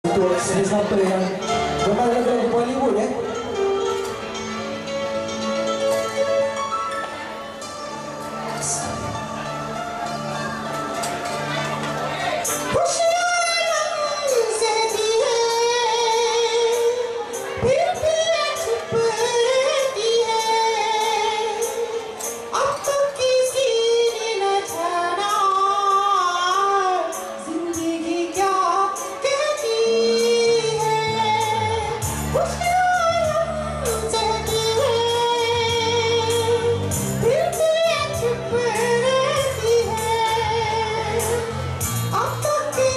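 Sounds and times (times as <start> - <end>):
backing track with beat and bass: 3.2 - 42.9.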